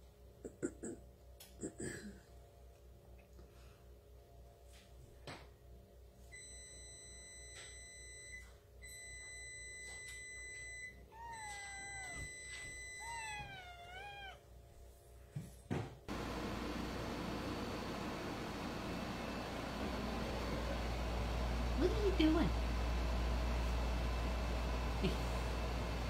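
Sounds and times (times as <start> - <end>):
kitten meowing: 11.1 - 14.4.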